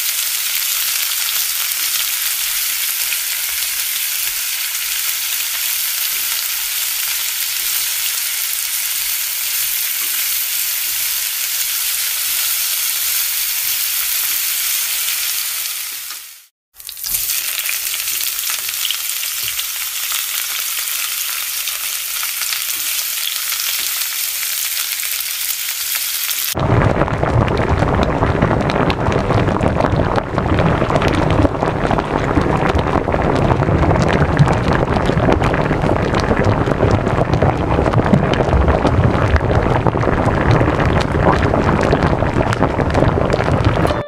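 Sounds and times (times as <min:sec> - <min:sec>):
chicken sizzling in a frying pan: 0:00.0 - 0:26.6
sauce crackling and bubbling: 0:00.0 - 0:44.0.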